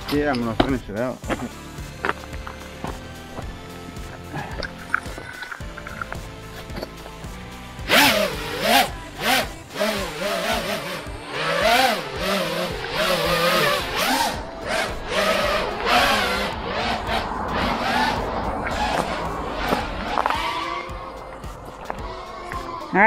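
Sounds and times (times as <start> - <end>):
quadcopter motors whining: 7.8 - 23.0.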